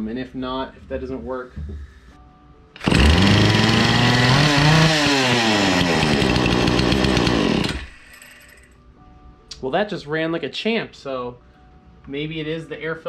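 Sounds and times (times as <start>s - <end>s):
chainsaw engine revving: 2.8s - 8.3s.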